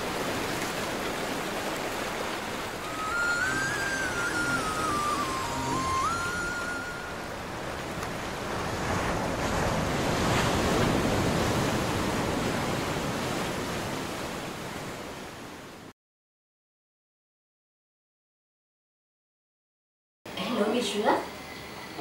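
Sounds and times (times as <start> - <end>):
sea waves washing in: 0.0 - 15.9.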